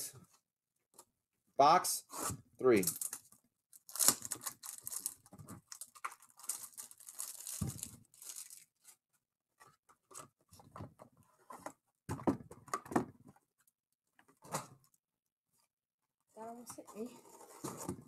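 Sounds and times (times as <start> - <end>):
plastic shrink wrap tearing: 2.8 - 8.9.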